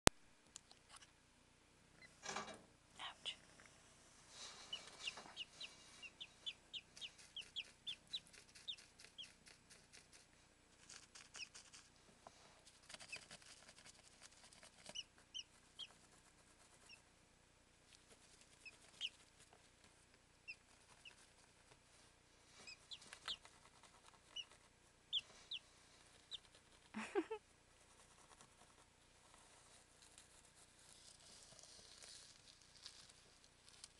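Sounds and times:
chicks peeping: 4.3 - 10.2, 10.9 - 11.8, 12.9 - 13.8, 14.4 - 16.0, 18.4 - 19.4, 20.4 - 21.4, 22.5 - 26.9.

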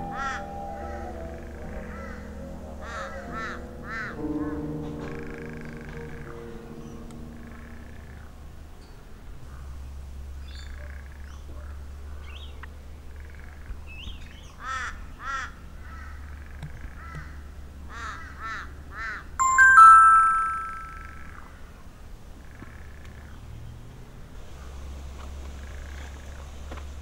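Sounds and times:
bird calling: 0.0 - 8.2
mobile phone chime: 19.4 - 21.2.

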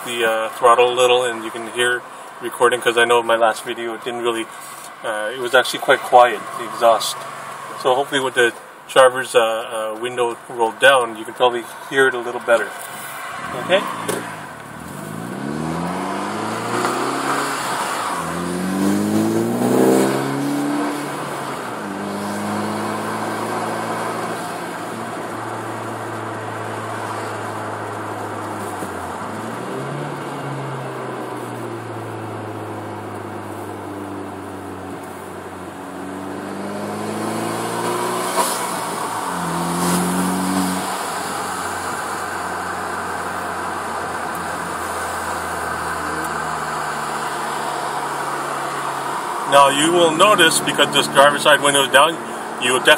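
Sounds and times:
car engine accelerating: 13.3 - 52.9.

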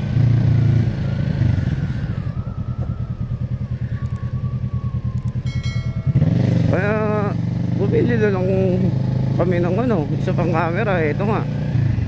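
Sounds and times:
motorcycle engine at low revs: 0.0 - 12.0
faint falling whine: 1.7 - 6.2.

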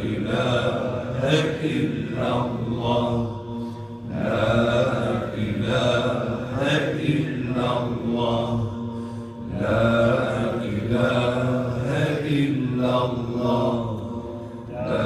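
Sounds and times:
man chanting a hymn: 0.0 - 15.0.

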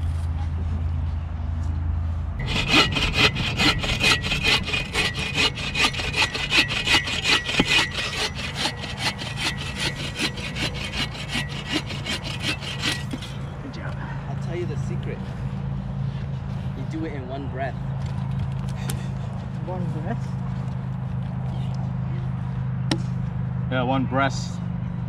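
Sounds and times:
hand saw rasping through wood: 2.4 - 13.4.

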